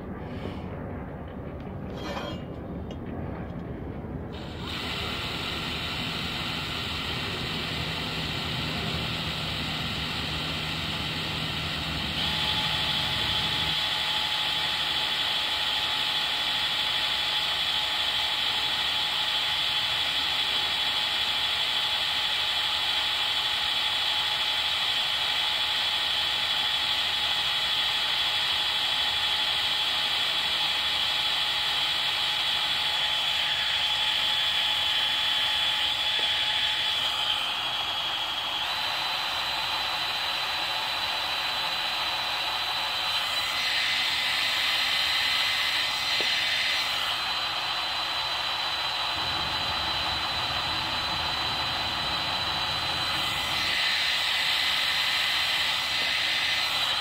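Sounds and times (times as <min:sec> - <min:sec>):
cordless drill boring into metal: 0:04.4 - 0:57.0.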